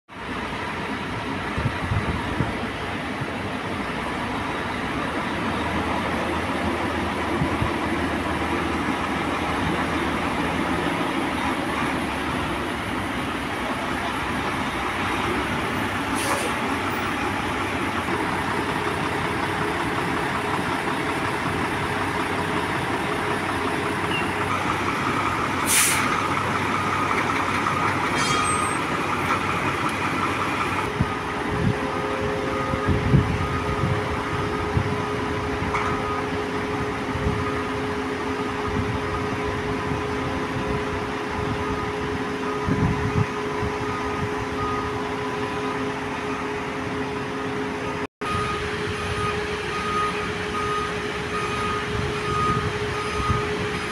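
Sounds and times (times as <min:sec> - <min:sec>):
diesel truck engine running: 0:00.1 - 0:53.9
air brakes hissing: 0:16.0 - 0:16.8, 0:25.5 - 0:26.4, 0:28.0 - 0:29.0.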